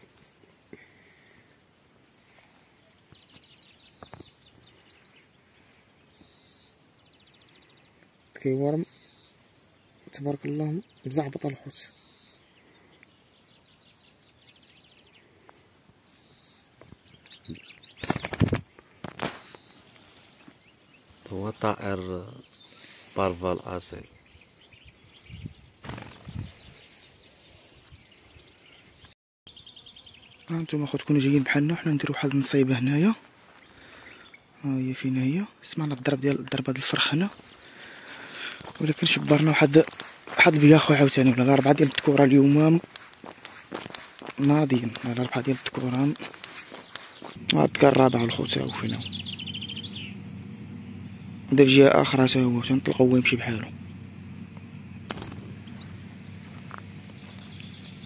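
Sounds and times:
faint rapid chirping: 0.0s - 28.9s, 29.5s - 58.0s
high bird calls: 0.0s - 58.0s
brief rustle: 18.0s - 20.6s.

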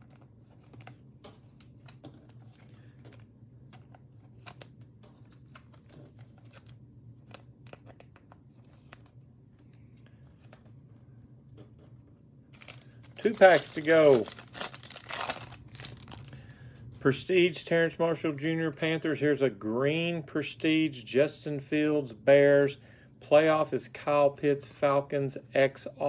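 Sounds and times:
cards clicking and rustling: 0.0s - 9.2s, 12.5s - 16.3s
low steady hum: 0.0s - 26.0s.

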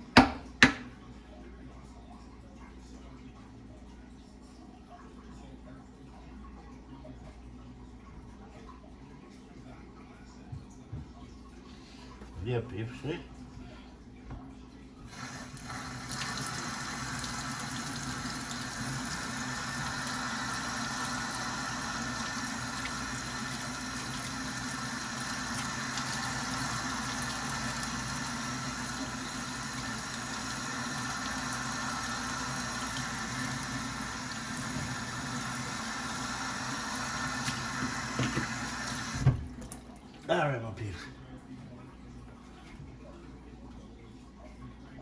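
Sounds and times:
tap running into sink: 37.3s - 39.8s.

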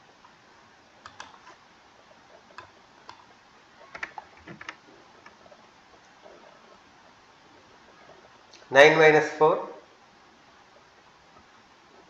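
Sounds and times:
keyboard and mouse clicks: 1.0s - 1.6s, 2.5s - 5.4s.

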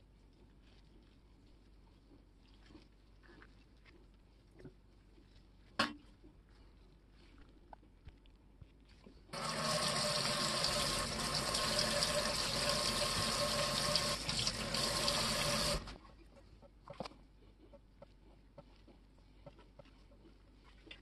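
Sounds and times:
water splashing into metal sink: 9.4s - 15.9s.

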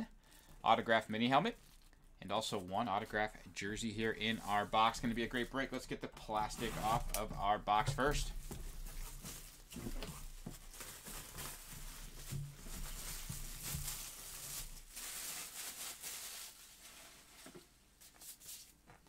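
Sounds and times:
plastic shrink wrap tearing: 8.9s - 17.0s.

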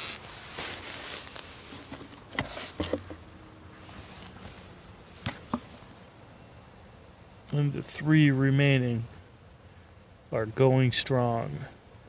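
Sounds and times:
light rustling: 0.0s - 6.0s.

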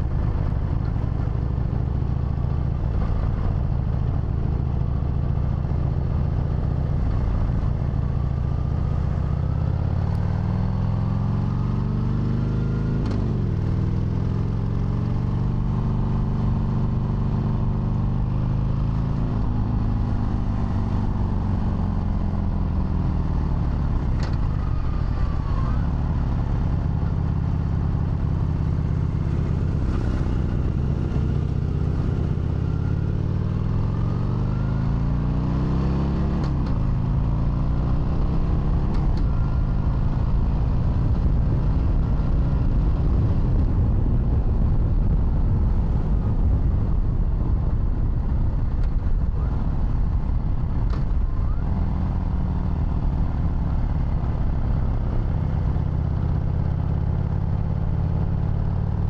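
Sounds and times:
motorcycle engine revving: 6.6s - 47.0s.

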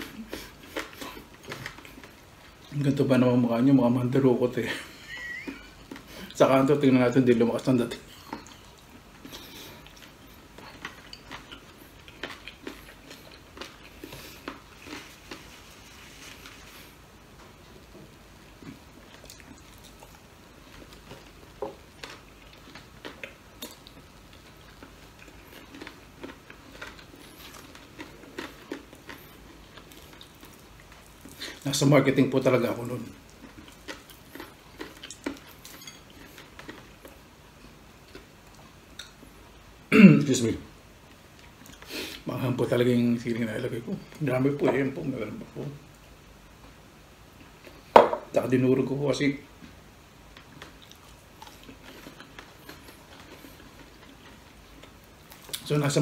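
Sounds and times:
chewing sounds: 0.0s - 2.9s, 7.9s - 16.9s, 18.5s - 39.5s, 41.1s - 42.2s, 49.6s - 55.8s
crispy chicken crackling: 0.0s - 39.4s, 47.4s - 56.0s.

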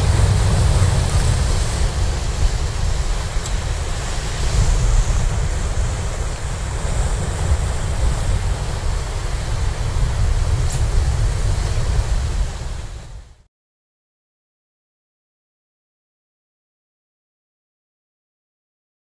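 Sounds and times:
sea waves breaking over rocks: 0.0s - 13.2s
wind buffeting microphone: 0.0s - 13.4s.

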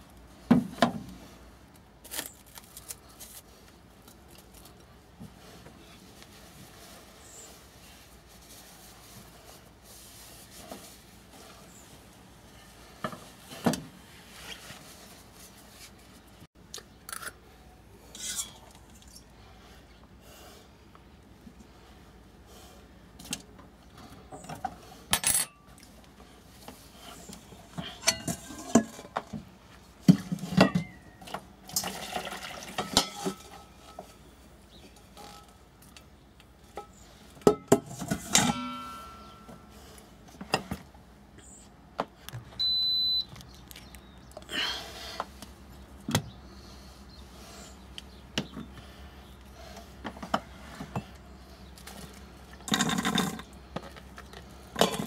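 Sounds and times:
metal pot and utensils clinking: 18.1s - 18.7s, 27.8s - 29.1s, 31.7s - 34.0s, 37.5s - 39.6s, 54.8s - 55.0s
short electronic beep: 42.6s - 43.3s.

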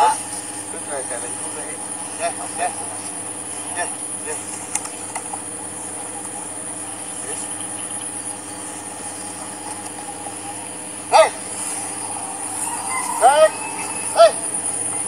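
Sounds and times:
high-pitched insect-like hum: 0.0s - 15.0s
bird call: 5.9s - 15.0s.

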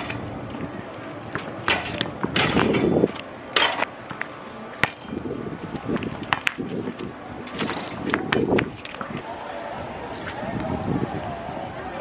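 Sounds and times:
basketball hitting hoop and court: 1.4s - 4.2s.

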